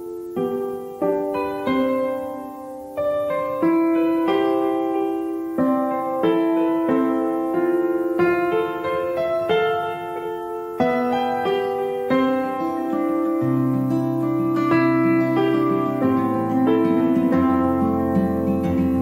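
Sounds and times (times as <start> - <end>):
gentle piano chords: 0.0 - 19.0.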